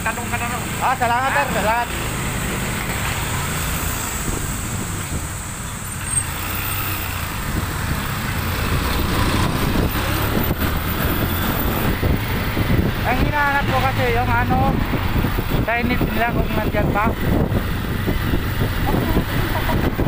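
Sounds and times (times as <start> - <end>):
traffic: 0.0 - 20.0
wind and road noise: 0.0 - 20.0
motorcycle engine running: 6.3 - 20.0.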